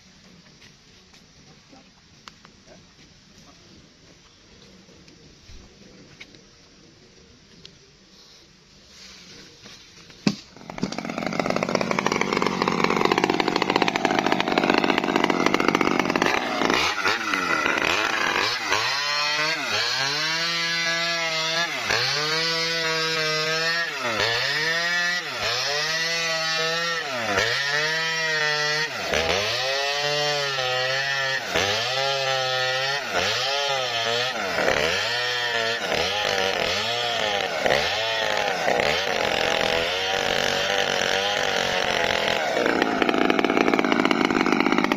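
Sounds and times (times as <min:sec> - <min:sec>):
chainsaw cutting wood: 0:10.2 - 0:44.9.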